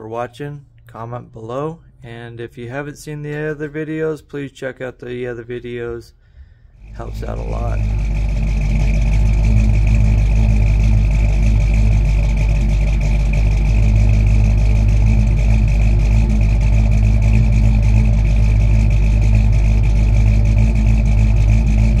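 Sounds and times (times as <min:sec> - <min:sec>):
vehicle engine running: 0:05.0 - 0:22.0.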